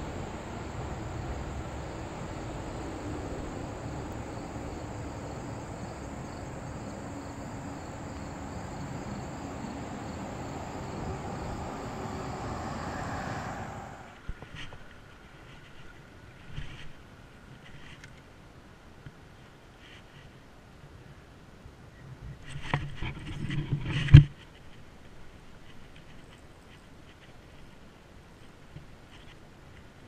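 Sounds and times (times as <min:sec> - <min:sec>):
creek water rushing: 0:00.0 - 0:14.2.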